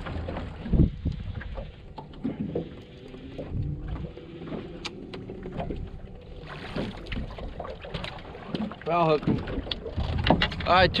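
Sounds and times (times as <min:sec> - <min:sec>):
wind on microphone: 0:00.0 - 0:07.6
water slapping against boat hull: 0:00.0 - 0:11.0.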